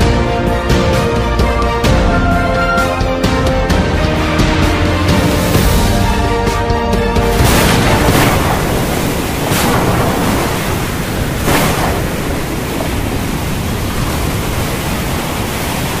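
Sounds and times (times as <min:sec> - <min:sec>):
stormy sea rushing: 0:00.0 - 0:16.0
wind: 0:07.4 - 0:16.0.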